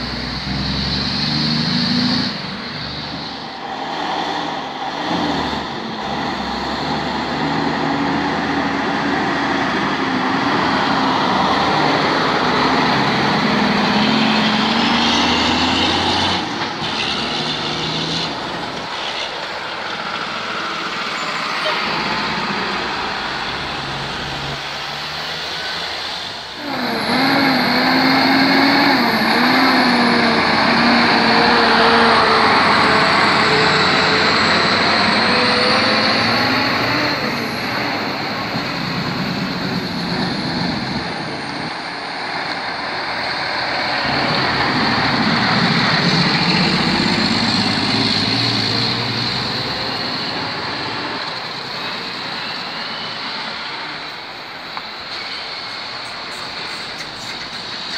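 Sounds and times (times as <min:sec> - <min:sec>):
heavy road noise: 0:00.0 - 0:57.9
trucks passing: 0:00.0 - 0:57.9.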